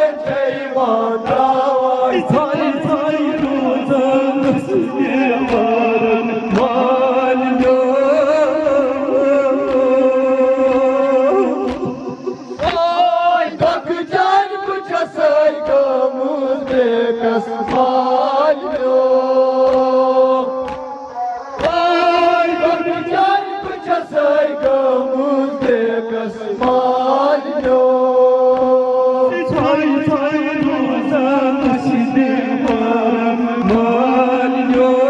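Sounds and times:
men chanting a lament in unison: 0:00.0 - 0:35.0
chest-beating slaps: 0:07.6 - 0:07.9, 0:10.6 - 0:13.0, 0:20.6 - 0:21.9.

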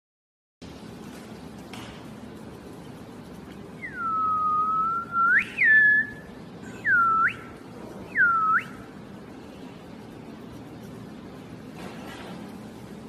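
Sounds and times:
person whistling: 0:03.8 - 0:07.5, 0:08.1 - 0:08.8.

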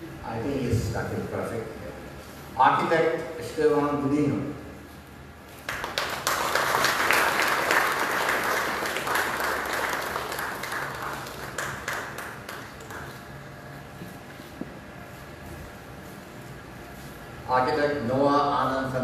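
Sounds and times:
audience applauding: 0:05.7 - 0:13.4.

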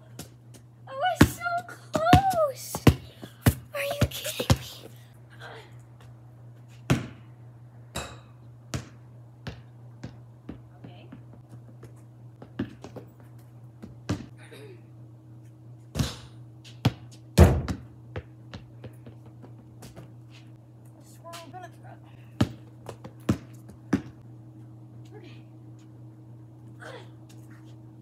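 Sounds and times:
steady low hum: 0:00.0 - 0:28.0
basketball bouncing on concrete: 0:01.1 - 0:04.9, 0:06.9 - 0:07.3, 0:07.9 - 0:14.3, 0:15.9 - 0:20.2, 0:22.3 - 0:24.2.

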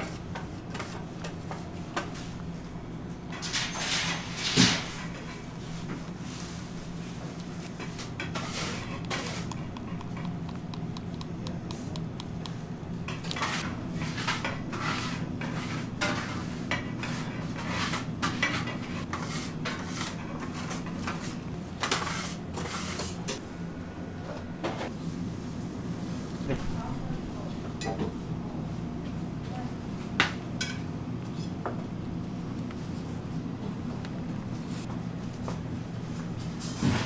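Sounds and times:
steady low hum: 0:04.3 - 0:36.7.

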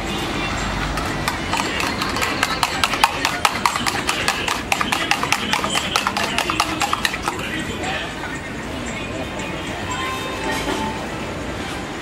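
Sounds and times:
spoon clinking in metal tumbler: 0:01.0 - 0:07.4.

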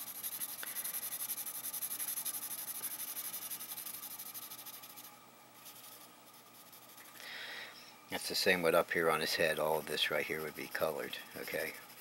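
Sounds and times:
pencil scratching on paper: 0:00.0 - 0:07.1, 0:10.4 - 0:12.0.

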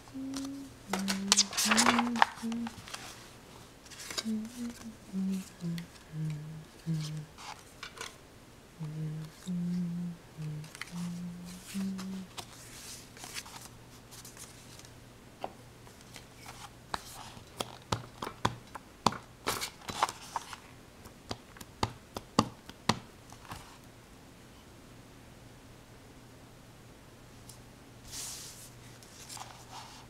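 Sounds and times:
low voice-like tones: 0:00.0 - 0:02.8, 0:04.2 - 0:07.3, 0:08.8 - 0:12.3
steady low hum: 0:00.0 - 0:17.6.

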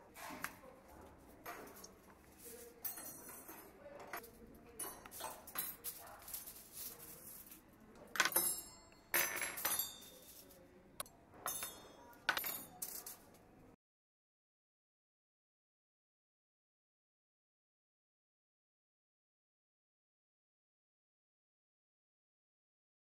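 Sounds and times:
small hard objects clinking: 0:01.1 - 0:10.7, 0:11.5 - 0:13.3.

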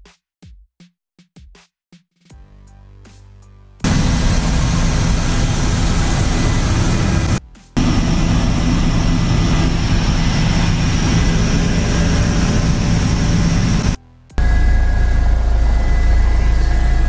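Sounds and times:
aircraft engine drone in cabin: 0:03.8 - 0:17.0.

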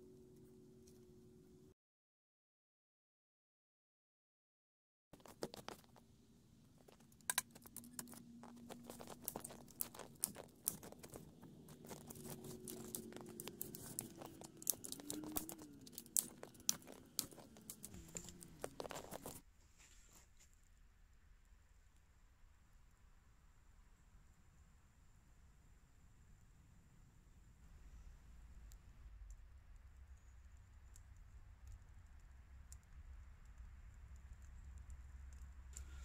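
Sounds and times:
twigs snapping: 0:06.9 - 0:19.4.

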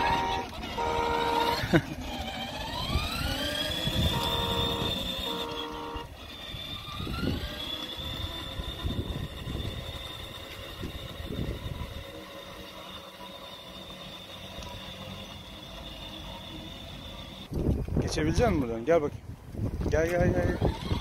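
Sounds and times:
toy car electric motor whine: 0:00.0 - 0:18.4, 0:20.0 - 0:21.0
short electronic tones: 0:04.0 - 0:06.1.

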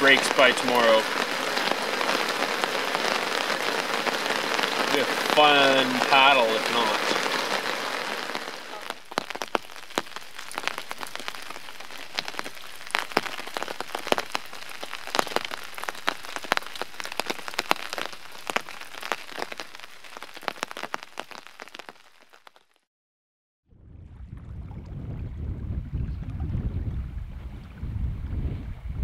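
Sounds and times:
heavy rain falling: 0:00.0 - 0:22.7
sharp raindrop impacts: 0:00.0 - 0:22.8.

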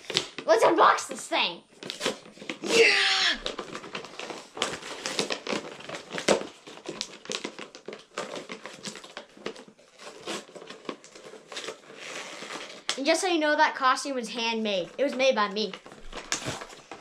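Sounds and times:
packaging crinkling and rustling: 0:00.0 - 0:00.5, 0:01.7 - 0:02.7, 0:03.4 - 0:13.0, 0:14.8 - 0:17.0.

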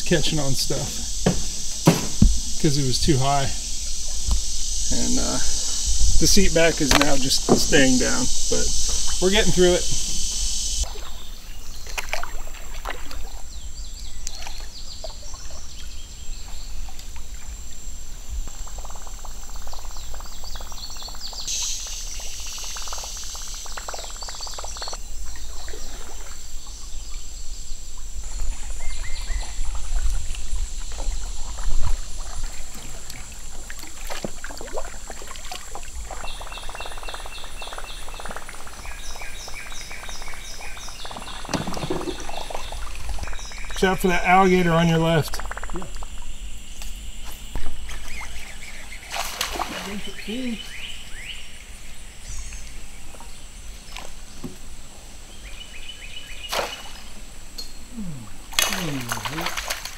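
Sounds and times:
birds calling: 0:00.0 - 0:59.9
insects trilling: 0:00.0 - 0:59.9
paddle splashing in water: 0:01.0 - 0:02.6, 0:06.8 - 0:13.5, 0:28.3 - 0:43.6, 0:47.6 - 0:50.7, 0:56.5 - 0:57.2, 0:58.5 - 0:59.9.

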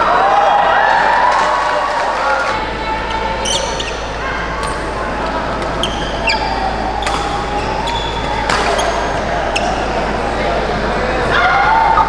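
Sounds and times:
crowd chatter: 0:00.0 - 0:12.0
shoes squeaking on floor: 0:03.4 - 0:10.0
racket striking shuttlecock: 0:04.6 - 0:10.0.

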